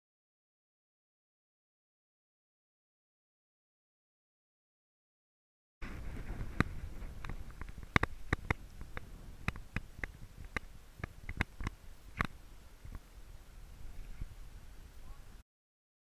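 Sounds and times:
steady low rumble: 0:05.8 - 0:15.4
sharp clicks and knocks: 0:06.2 - 0:13.0.

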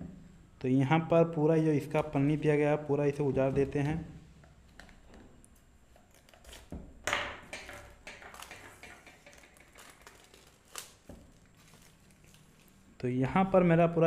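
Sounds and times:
plastic shrink wrap crinkling: 0:04.6 - 0:06.8, 0:07.8 - 0:13.0
sharp plastic crackle: 0:07.6 - 0:13.0.

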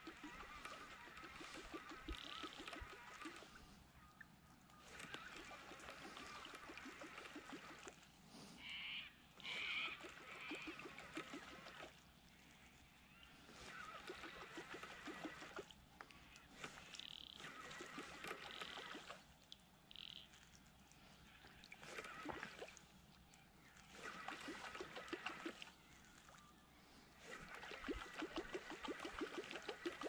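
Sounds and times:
fishing reel whirring: 0:00.0 - 0:03.6, 0:04.9 - 0:08.0, 0:09.4 - 0:12.0, 0:13.5 - 0:15.8, 0:16.6 - 0:19.2, 0:21.8 - 0:22.7, 0:23.9 - 0:25.7, 0:27.2 - 0:30.0.

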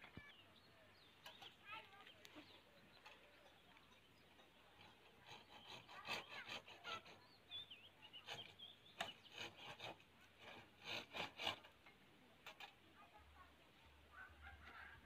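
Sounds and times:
hand scraping concrete wall: 0:04.7 - 0:07.3.

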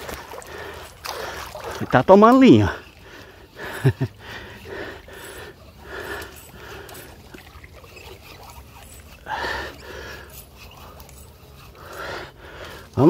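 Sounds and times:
man breathing hard: 0:00.3 - 0:01.8, 0:02.7 - 0:07.4, 0:09.1 - 0:13.0.

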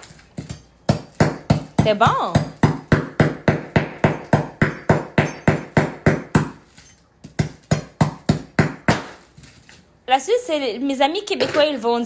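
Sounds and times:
knife chopping sugar loaf: 0:00.0 - 0:06.6, 0:07.2 - 0:09.3.

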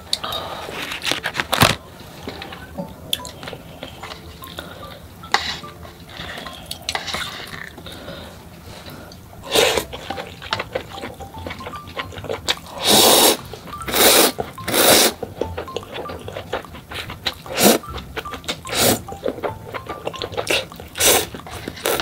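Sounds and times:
food handling: 0:00.0 - 0:07.9
wet chewing: 0:08.8 - 0:22.0.

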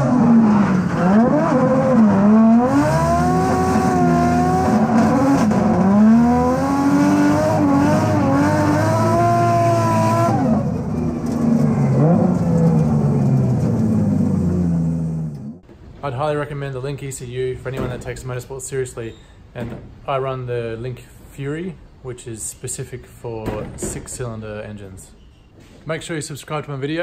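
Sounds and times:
car engine revving: 0:00.0 - 0:15.6.

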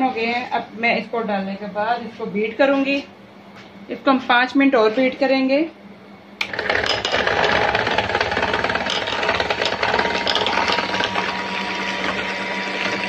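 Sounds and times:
hand mixer whipping cream: 0:06.5 - 0:13.0.

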